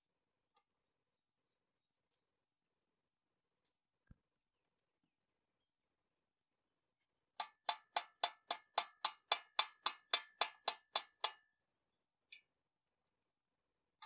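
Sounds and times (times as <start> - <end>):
sharp metallic taps: 7.4 - 11.5.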